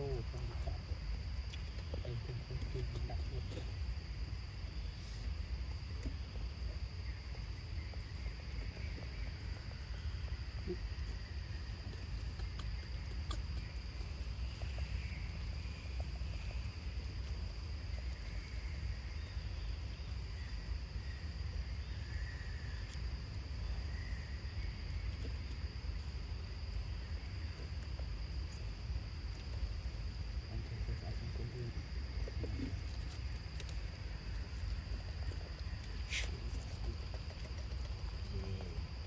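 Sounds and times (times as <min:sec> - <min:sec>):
constant low rumble: 0:00.0 - 0:39.0
high insect drone: 0:00.0 - 0:39.0
faint chirps: 0:28.4 - 0:39.0.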